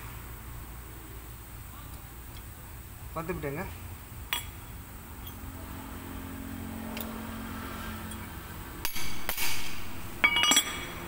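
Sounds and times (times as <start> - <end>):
hammer striking metal: 8.1 - 11.0.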